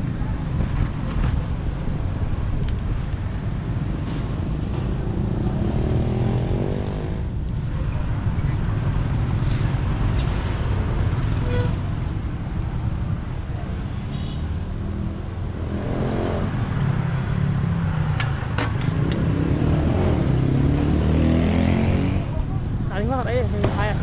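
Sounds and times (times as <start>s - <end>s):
motorbike and car engines passing: 3.6s - 22.6s.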